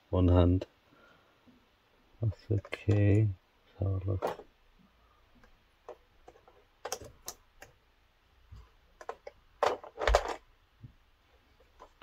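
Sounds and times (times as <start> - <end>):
plastic clicks and rattles: 2.3 - 3.2, 4.1 - 4.5, 5.4 - 7.8, 9.0 - 10.5.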